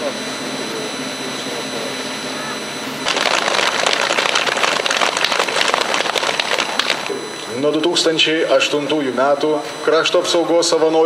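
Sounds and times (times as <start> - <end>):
crowd applauding: 3.0 - 7.1.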